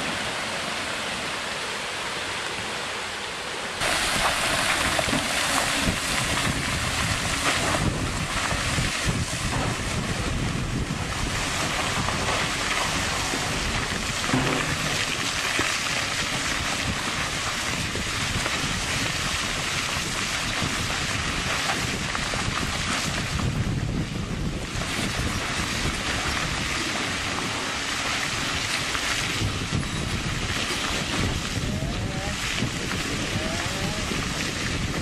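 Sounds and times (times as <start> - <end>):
wind on microphone: 3.8 - 35.0
distant excavator engine: 14.2 - 15.7.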